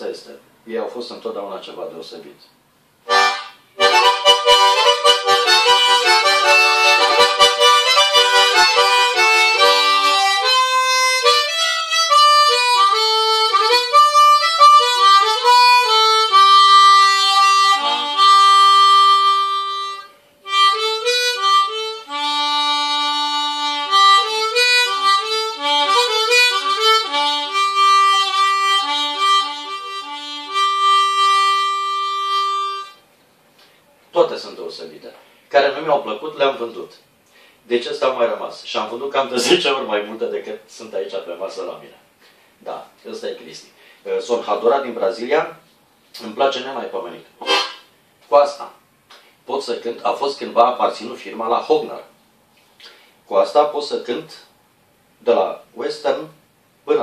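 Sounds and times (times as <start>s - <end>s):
harmonica playing: 3.0s - 33.0s, 39.4s - 39.8s, 47.4s - 47.9s.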